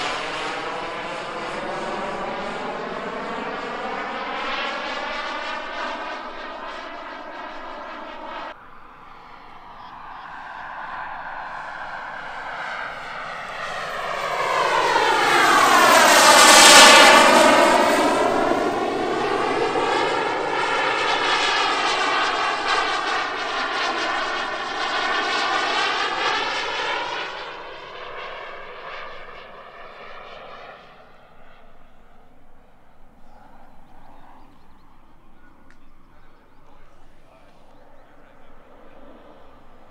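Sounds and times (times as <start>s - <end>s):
high turbine whine: 0.0s - 39.9s
model jet turbine flying past: 0.0s - 39.9s.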